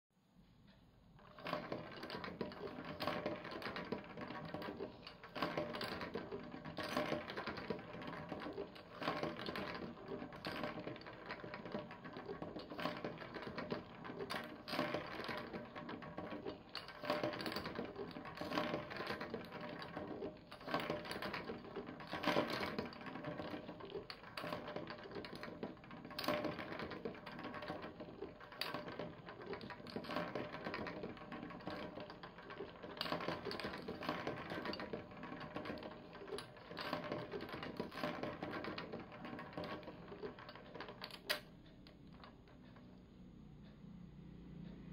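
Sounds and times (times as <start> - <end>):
balls rattling through marble run: 1.2 - 43.1.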